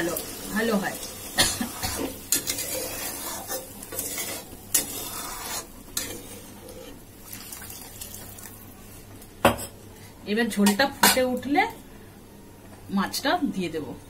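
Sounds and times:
water poured into sizzling pan: 0:07.2 - 0:08.6.

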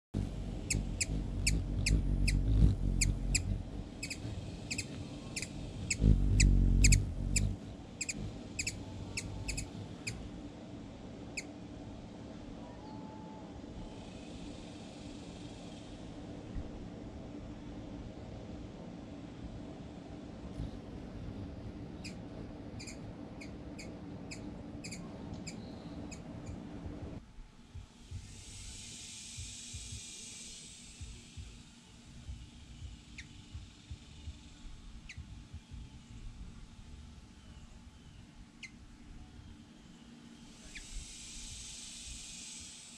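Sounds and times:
low rumble: 0:00.1 - 0:12.6, 0:13.6 - 0:38.2
hummingbird chip notes: 0:00.2 - 0:11.6
insect drone: 0:00.2 - 0:27.2, 0:27.8 - 0:42.9.

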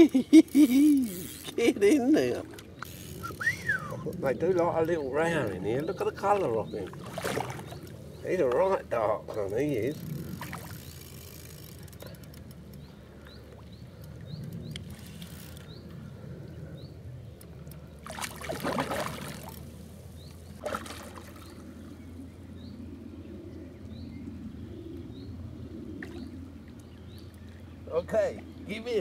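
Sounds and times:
fish splashing and thrashing: 0:06.8 - 0:08.6, 0:10.2 - 0:15.7, 0:17.9 - 0:21.8.

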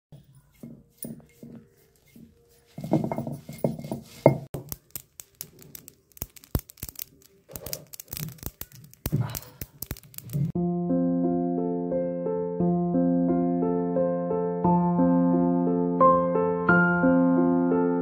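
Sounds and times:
mustard seeds crackling and popping: 0:00.4 - 0:10.6
piano music: 0:10.6 - 0:18.0.

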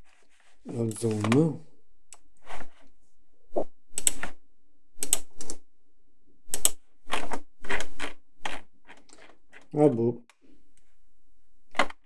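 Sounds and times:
mouse scroll wheel clicking: 0:05.0 - 0:05.6, 0:06.5 - 0:09.6.

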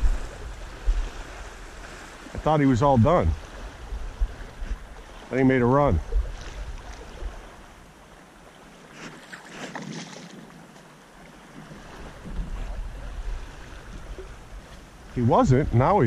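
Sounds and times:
wind buffeting microphone: 0:00.0 - 0:07.6
small waves lapping: 0:00.0 - 0:16.0.

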